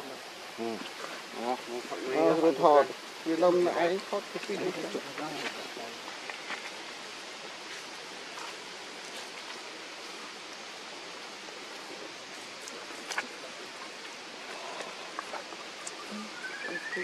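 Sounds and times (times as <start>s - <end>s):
outdoor background hiss: 0.0s - 17.0s
faint ticks: 14.0s - 16.2s.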